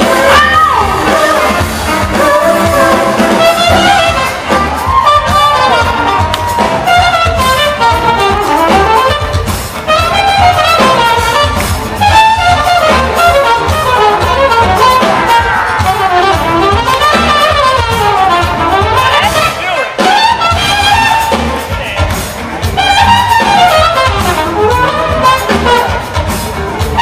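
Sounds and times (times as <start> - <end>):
funk band playing: 0.0 - 27.0
trumpet bending phrases: 0.0 - 27.0.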